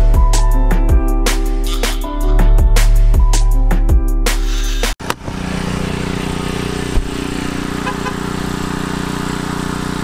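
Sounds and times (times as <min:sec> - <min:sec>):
generator engine running: 0:05.0 - 0:10.0.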